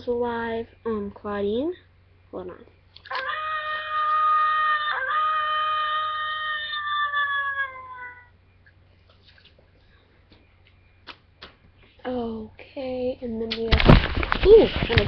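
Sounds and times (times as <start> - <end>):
toy wolf howl: 3.1 - 8.3.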